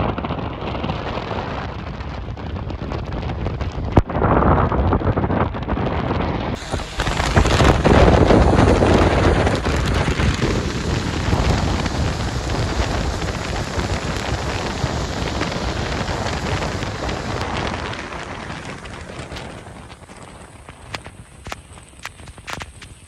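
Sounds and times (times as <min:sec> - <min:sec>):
wind and road noise: 0:00.0 - 0:23.0
tyres hissing on wet road: 0:06.6 - 0:23.0.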